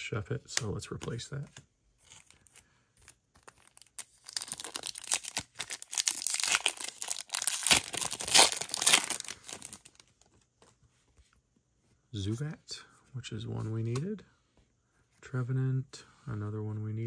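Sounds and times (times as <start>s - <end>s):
wrapper crinkling: 3.1s - 10.4s
foil pack tearing open: 3.6s - 9.9s.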